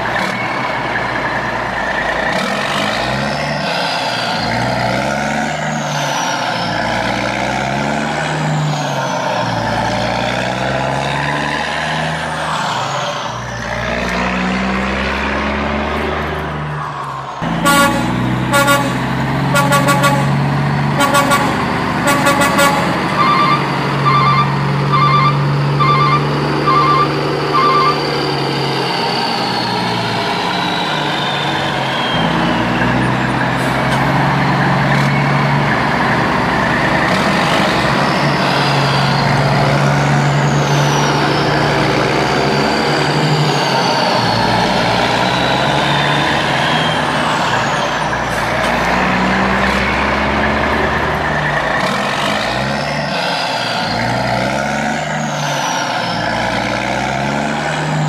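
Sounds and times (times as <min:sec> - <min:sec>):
truck engine running: 0:12.2 - 0:58.0
falling high whines: 0:22.2 - 0:32.7
short beeps: 0:22.3 - 0:28.1.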